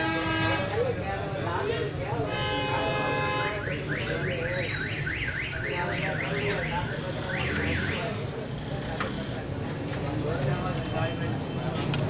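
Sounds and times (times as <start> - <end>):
car alarm whooping: 3.4 - 8.2.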